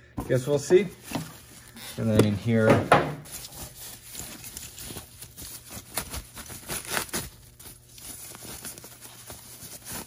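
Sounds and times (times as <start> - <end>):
packing wrap rustling and crinkling: 3.2 - 10.0.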